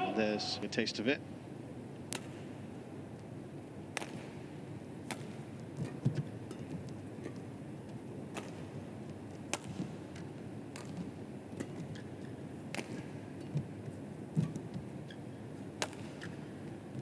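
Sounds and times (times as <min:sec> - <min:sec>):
indoor arena background noise: 0:00.0 - 0:17.0
racket hitting shuttlecock: 0:03.9 - 0:07.3, 0:08.3 - 0:08.8, 0:09.5 - 0:13.6, 0:15.7 - 0:16.8.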